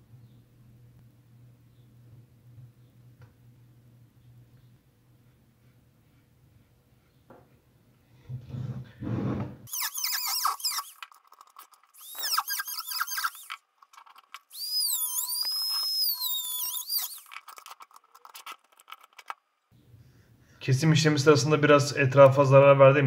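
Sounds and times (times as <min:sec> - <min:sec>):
rotary tool whining through plastic: 0:09.7 - 0:19.4
scratchy clicks: 0:09.7 - 0:19.7.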